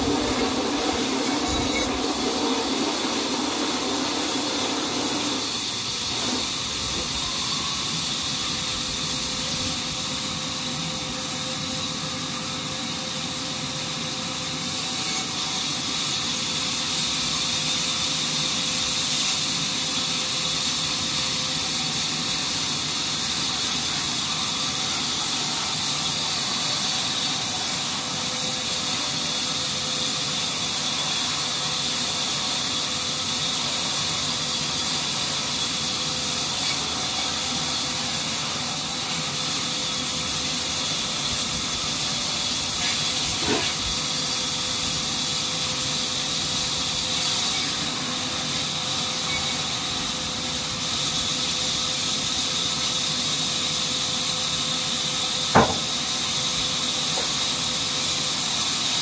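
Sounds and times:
saw hissing through log: 0.0s - 59.0s
knock: 55.6s - 55.9s.

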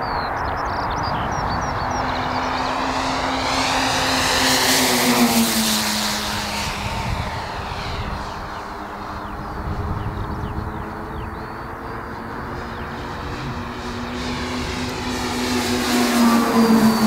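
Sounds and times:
model plane engines droning: 0.0s - 17.0s.

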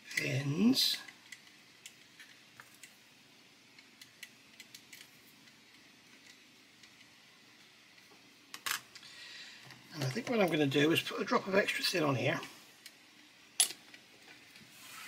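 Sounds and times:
small plastic parts clicking: 3.7s - 7.1s.

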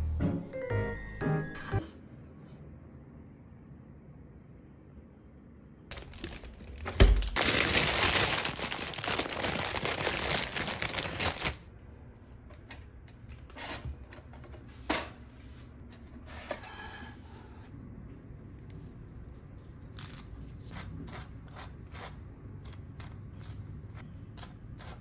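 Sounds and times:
plastic bag crinkling: 5.9s - 11.7s.

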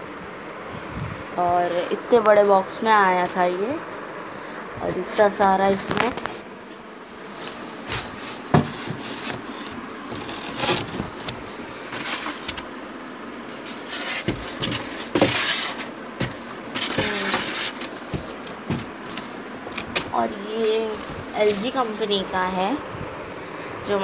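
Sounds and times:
cardboard scraping and rubbing: 7.1s - 12.8s, 13.4s - 21.8s
packing rustling: 7.1s - 12.8s, 13.4s - 21.8s
knocks and bumps: 7.8s - 9.5s, 13.9s - 20.3s.

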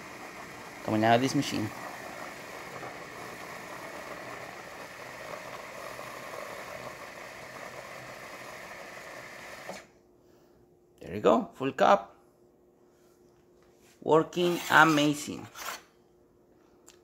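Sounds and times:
milk frother humming and hissing: 0.0s - 10.0s.

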